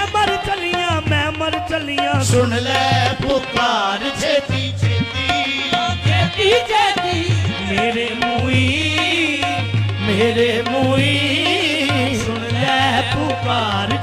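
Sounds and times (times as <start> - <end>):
continuous melody line: 0.0 - 14.0
tabla beat: 0.0 - 14.0.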